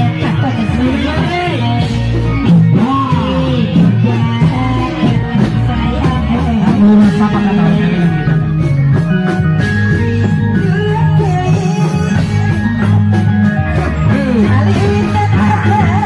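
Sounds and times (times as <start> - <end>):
deep held bass notes: 0.0 - 16.0
wavering melody: 0.0 - 16.0.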